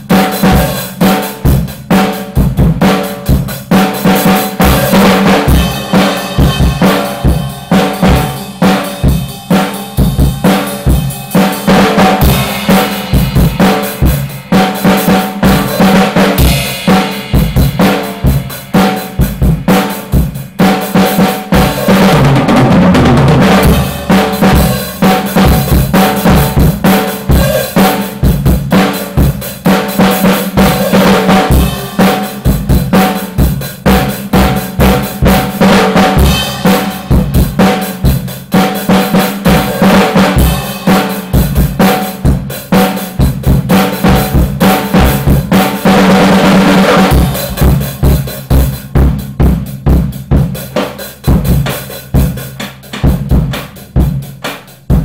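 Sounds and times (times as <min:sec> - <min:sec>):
drum kit playing: 0:00.0 - 0:55.0
drum roll: 0:00.0 - 0:55.0
cymbal hits: 0:05.5 - 0:20.1.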